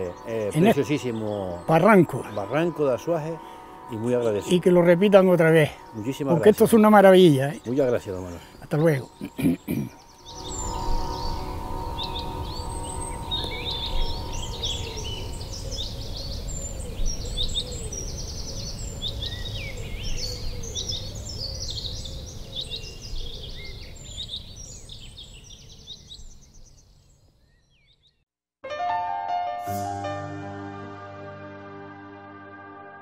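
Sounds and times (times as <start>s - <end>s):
small birds chirping: 0.0s - 28.2s.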